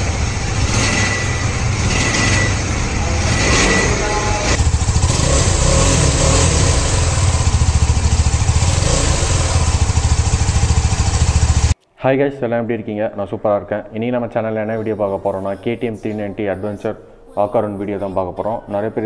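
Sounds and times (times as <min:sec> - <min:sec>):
motorcycle engine pulsing beat: 0:00.0 - 0:11.8.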